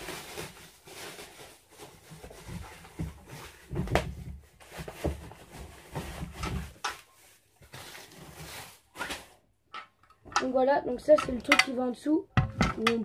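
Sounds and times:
plastic wrap rustling: 0.0 - 9.4.

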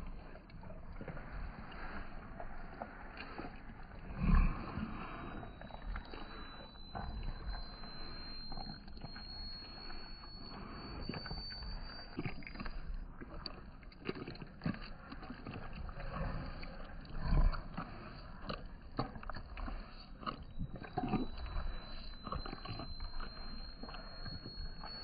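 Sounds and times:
dog licking wet food: 0.0 - 7.4, 8.0 - 24.1.

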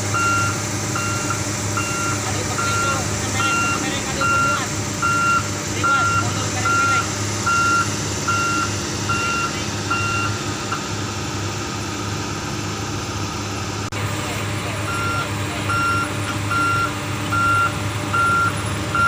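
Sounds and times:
diesel engines humming: 0.0 - 19.0
warning beeper beeping: 0.1 - 10.9, 14.7 - 19.0.

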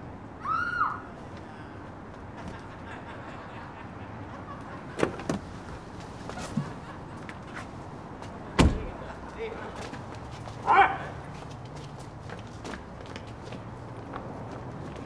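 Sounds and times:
low steady background noise: 0.0 - 15.0
car door clacks: 8.6 - 9.0.

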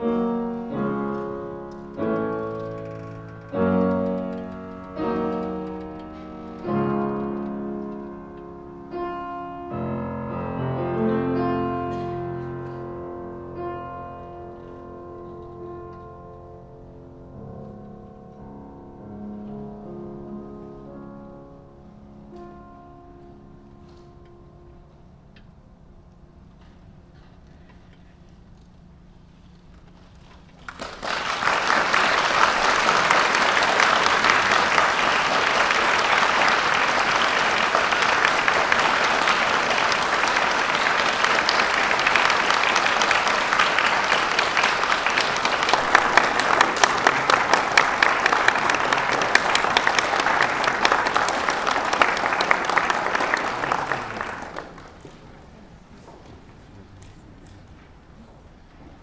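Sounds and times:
audience applauding: 2.0 - 7.5, 30.6 - 56.2.

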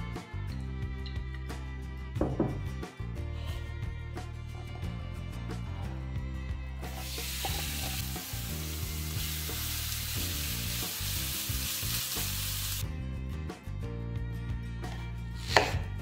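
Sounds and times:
meat sizzling in a frying pan: 6.9 - 12.8.

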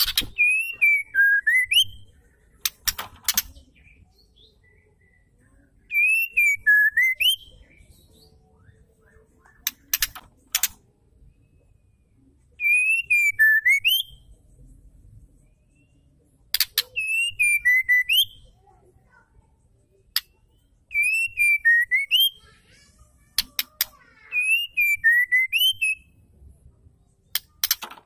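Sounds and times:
bird whistling song: 0.0 - 11.8, 12.6 - 14.3, 15.5 - 18.6, 20.2 - 22.5, 23.4 - 26.2
sharp clicks: 2.6 - 3.6, 9.6 - 10.8, 27.3 - 28.0.

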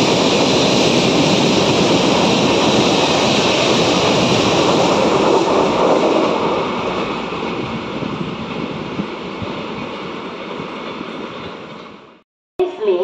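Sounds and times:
train passing at speed: 0.0 - 12.2.

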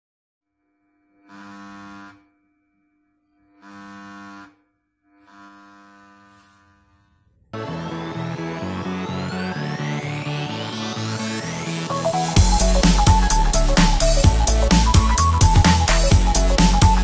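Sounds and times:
loudspeaker buzzing with mains hum: 0.6 - 7.2.

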